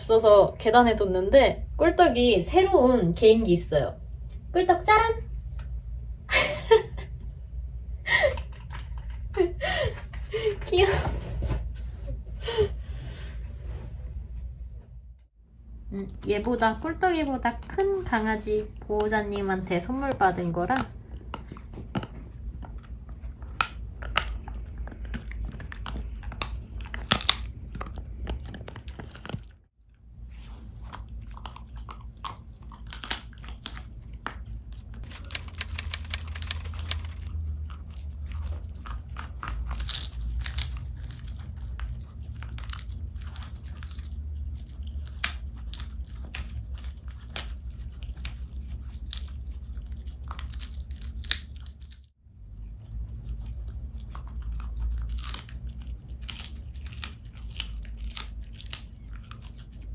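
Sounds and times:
dog chewing with sharp crunches: 17.5 - 29.6, 30.3 - 52.0, 52.6 - 59.9.

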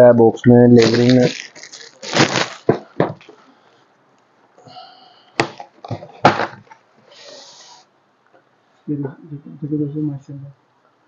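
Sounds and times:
plastic wrapping crinkling: 0.7 - 3.4.

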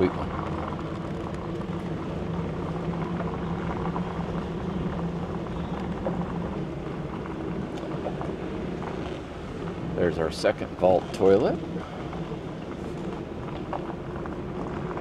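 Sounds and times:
truck engine droning: 0.0 - 15.0
tyres rolling over gravel: 10.1 - 15.0.

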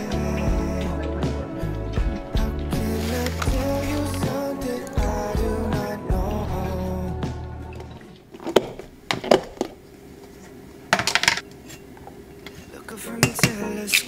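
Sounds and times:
glass and plastic clinking: 12.3 - 14.0.

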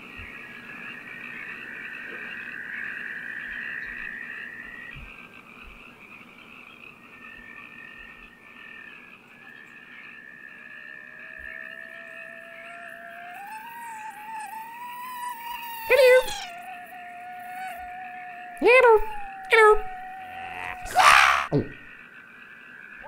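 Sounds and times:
chorus of frog croaks: 0.0 - 23.0.

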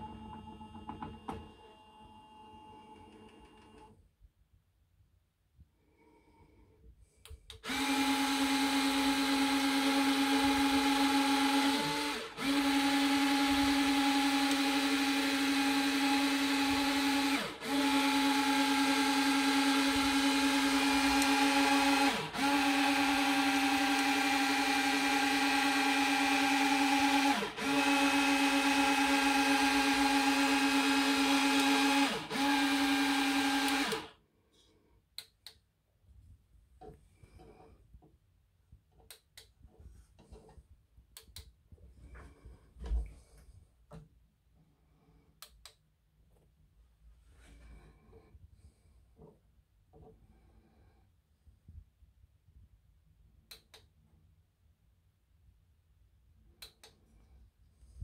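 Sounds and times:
small electric motors whining: 7.7 - 34.1.

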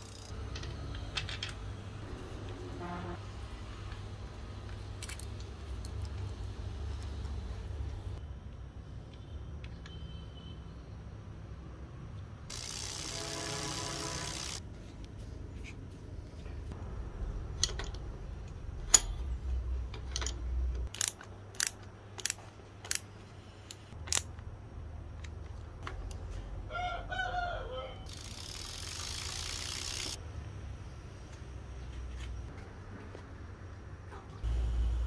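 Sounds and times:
spinning wheel whirring hiss: 0.0 - 1.1, 12.5 - 14.6, 28.1 - 30.2
metal tools clicking on hub: 0.0 - 1.6, 17.5 - 23.1
rooster crowing: 26.7 - 28.1.

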